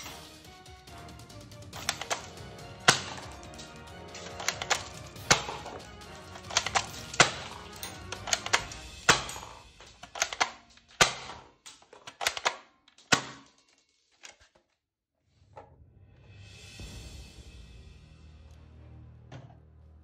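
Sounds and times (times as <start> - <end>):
background music: 0.0 - 11.4, 15.9 - 20.0
plastic toy rifle clicking: 1.8 - 14.6.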